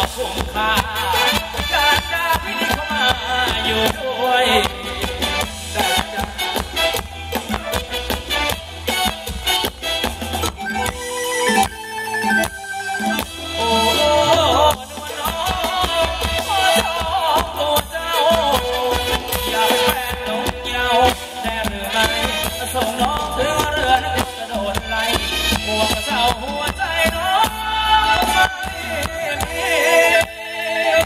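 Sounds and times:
electric guitars: 0.0 - 31.0
live band playing dance music: 0.0 - 31.0
wavering lead melody: 4.7 - 15.2.

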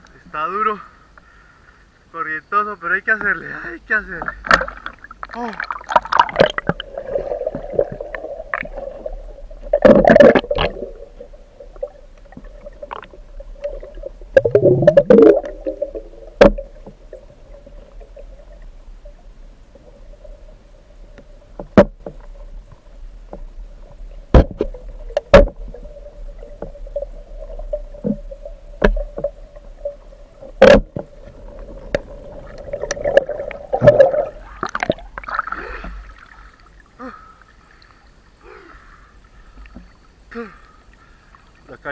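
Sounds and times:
underwater river current hum: 0.0 - 41.9
bubbling water rushes: 4.3 - 21.4, 23.7 - 37.0.

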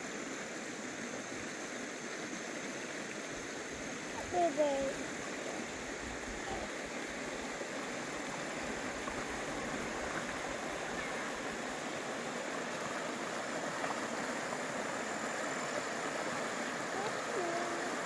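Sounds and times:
river rushing over rocks: 0.2 - 18.0.

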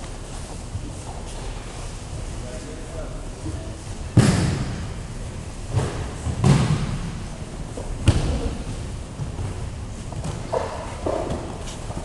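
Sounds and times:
bodies thudding on mats: 5.7 - 12.0.

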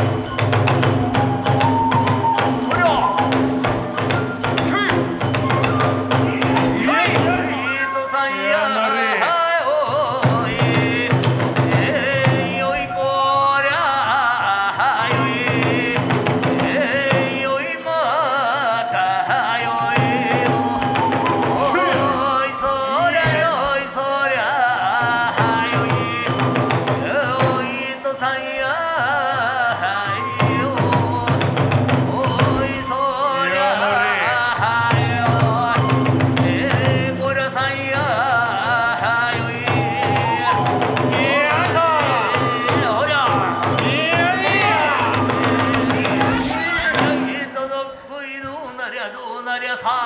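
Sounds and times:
taiko drum beat: 0.0 - 7.6, 10.2 - 12.7, 15.1 - 17.5, 19.7 - 22.3, 30.2 - 32.8, 38.0 - 47.4
bamboo flute melody: 0.0 - 8.4, 17.7 - 24.5, 25.3 - 28.0, 29.8 - 33.7, 35.0 - 37.1, 39.4 - 47.2
chanted singing: 0.0 - 50.0.

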